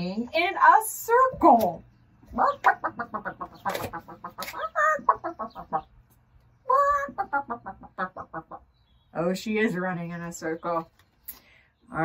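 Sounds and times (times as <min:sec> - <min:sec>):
hen clucking: 0:01.8 - 0:09.4
hen squawking: 0:02.3 - 0:06.0, 0:06.6 - 0:08.7.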